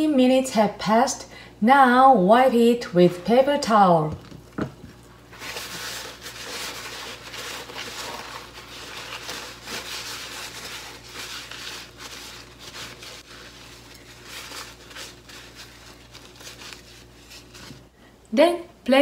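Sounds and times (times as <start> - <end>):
paper towel rustling and rubbing: 4.9 - 17.9.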